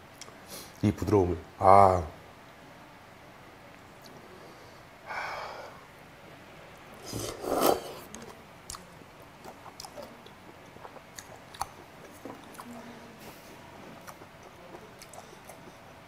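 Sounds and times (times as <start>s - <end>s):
man slurping noodles: 7.0s - 8.0s
wet chewing mouth clicks: 8.1s - 12.8s, 14.0s - 15.8s.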